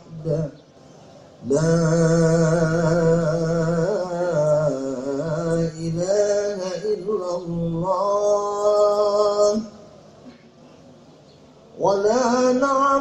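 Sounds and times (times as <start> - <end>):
man chanting: 0.0 - 0.6, 1.4 - 9.8, 11.8 - 13.0.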